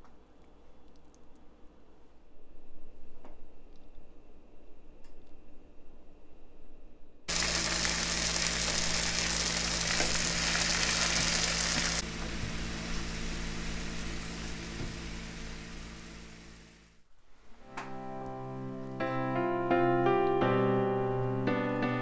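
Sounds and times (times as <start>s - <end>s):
steady low hum: 0.2s - 17.2s
food sizzling in hot oil: 7.3s - 16.9s.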